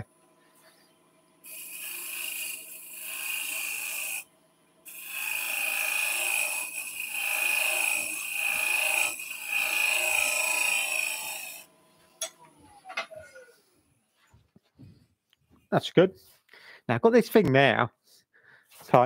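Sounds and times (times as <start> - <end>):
chisel scraping spinning wood: 4.9 - 11.7.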